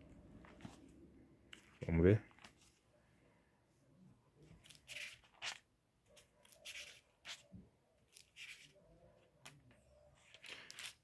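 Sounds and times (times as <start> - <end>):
thin pages rustling: 0.4 - 2.8, 4.4 - 7.5, 8.1 - 11.0.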